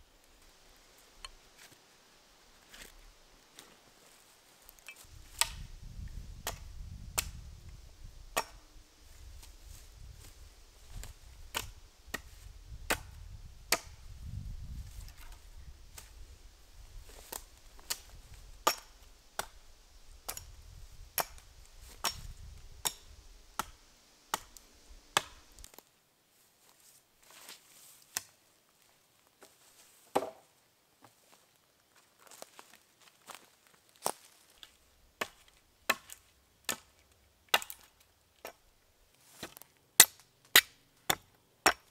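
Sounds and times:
axe chopping wooden pole: 0:05.3 - 0:05.7, 0:08.4 - 0:08.7, 0:11.0 - 0:14.0, 0:17.9 - 0:19.6, 0:22.0 - 0:23.0, 0:23.6 - 0:24.6, 0:25.2 - 0:25.4, 0:30.1 - 0:30.4, 0:35.2 - 0:36.9, 0:37.5 - 0:38.6, 0:39.4 - 0:41.9.

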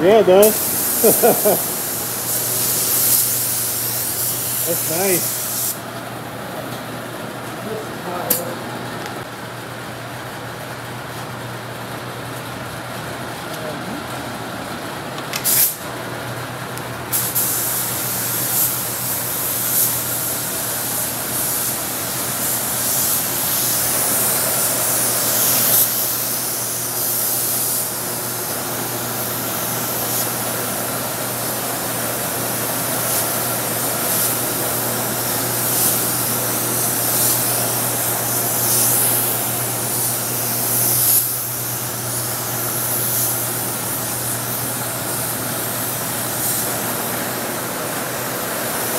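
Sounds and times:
spray gun hissing: 0:00.2 - 0:05.8, 0:15.4 - 0:15.8, 0:17.1 - 0:48.9.

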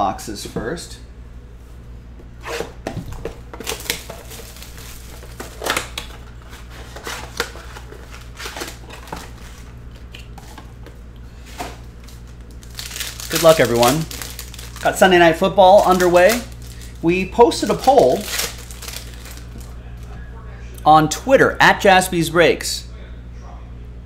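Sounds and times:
low steady hum: 0:00.0 - 0:24.0
cardboard and packs tearing crinkling: 0:02.4 - 0:10.6, 0:12.0 - 0:19.7.

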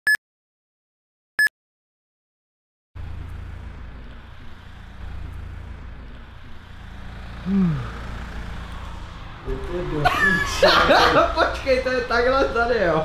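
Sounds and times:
low outdoor rumble: 0:03.0 - 0:13.0.

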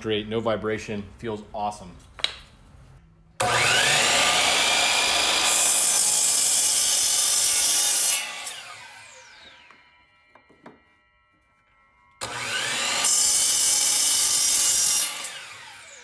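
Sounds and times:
miter saw motor whine: 0:03.4 - 0:05.9, 0:08.1 - 0:11.3, 0:12.2 - 0:14.2
saw blade cutting wood: 0:03.4 - 0:10.8, 0:12.2 - 0:16.0.

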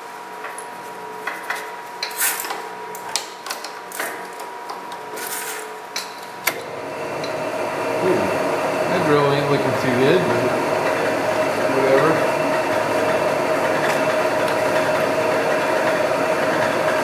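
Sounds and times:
drill press motor running: 0:06.3 - 0:17.0.

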